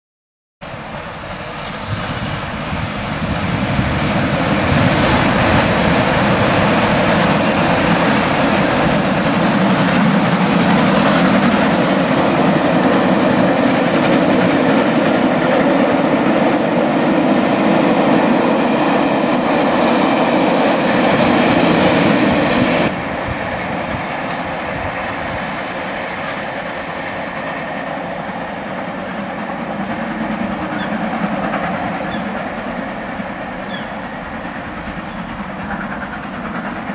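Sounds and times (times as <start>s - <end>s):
train wheel clatter: 2.5s - 17.0s, 20.6s - 36.9s.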